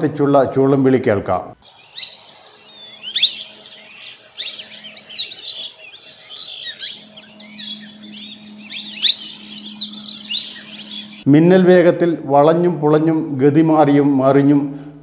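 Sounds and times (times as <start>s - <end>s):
parakeets calling: 1.6s - 11.3s.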